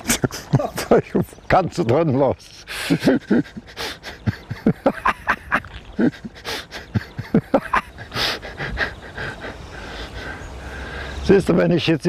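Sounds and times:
man laughing hard: 0.0 - 1.2, 2.7 - 10.0
wheezing panting breaths: 2.6 - 4.7, 6.0 - 11.2.

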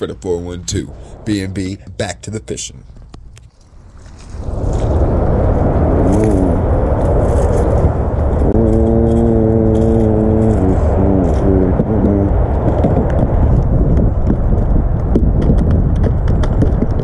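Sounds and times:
boat engine rumble: 2.6 - 14.2
droning engine note: 5.8 - 13.2.

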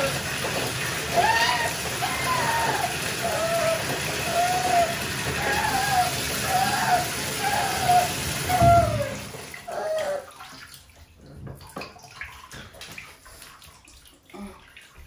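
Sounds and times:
water dripping and splashing: 0.0 - 15.0
water pouring into bathtub: 0.0 - 15.0
puppy whining: 1.1 - 10.4.

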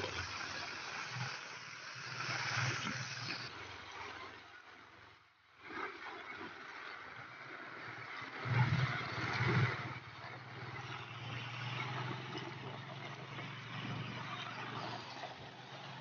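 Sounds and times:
heavy rain hissing: 0.0 - 3.5
tyres on wet road: 9.0 - 16.0
motorcycle engine running: 9.2 - 16.0.

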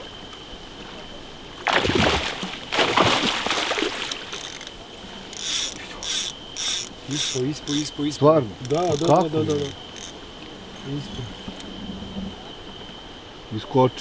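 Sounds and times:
fish splashing in a net: 1.6 - 4.8
short high rasping bursts: 5.4 - 7.9.

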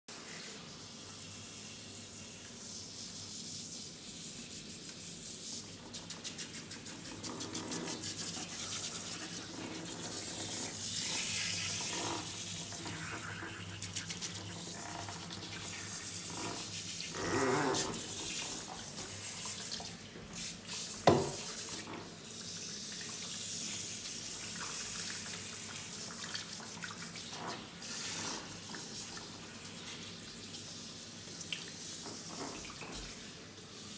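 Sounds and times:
shower spray splashing on fur: 0.1 - 33.9.

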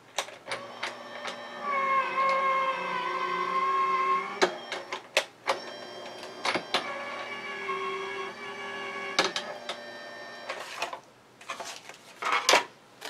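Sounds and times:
die-cutting machine motor hum: 0.5 - 10.5.

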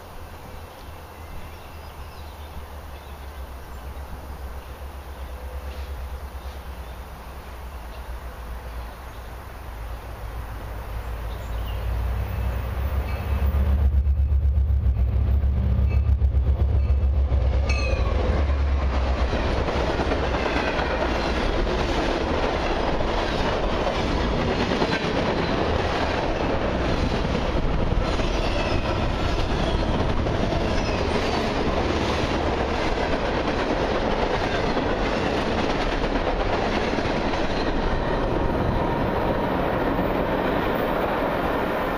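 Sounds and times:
clickety-clack of train wheels: 11.3 - 41.9
train wheel squeals: 11.4 - 13.6, 15.8 - 18.3, 28.0 - 31.5.

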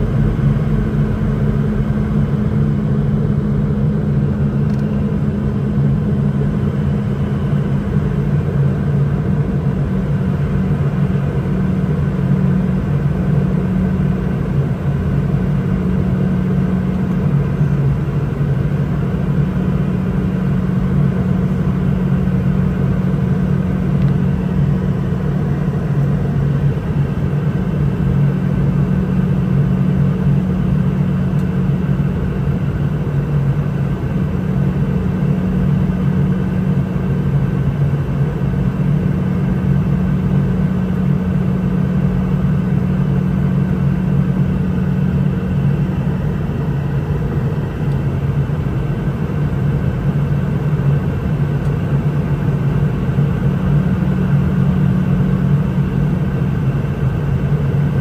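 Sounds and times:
jet engine hum in cabin: 0.0 - 58.0.

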